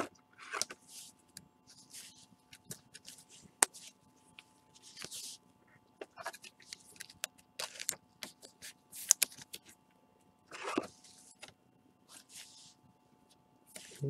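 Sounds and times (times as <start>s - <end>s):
card and plastic rustling: 6.0s - 9.8s
cards clicking and tapping: 6.1s - 9.7s.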